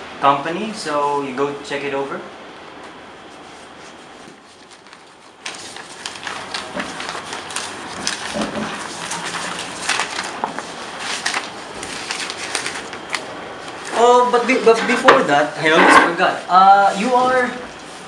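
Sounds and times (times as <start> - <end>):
paper rustling and pages turning: 3.3 - 16.2.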